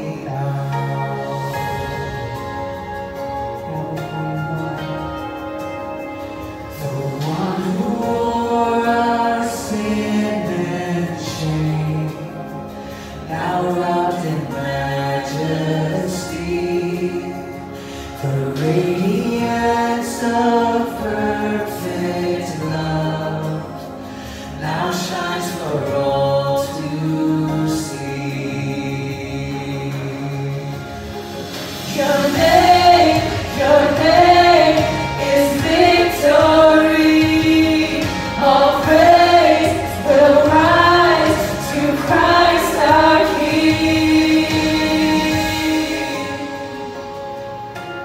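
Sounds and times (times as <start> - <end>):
instrumental accompaniment: 0.0 - 15.1, 26.9 - 48.0
voices singing together: 6.7 - 47.3.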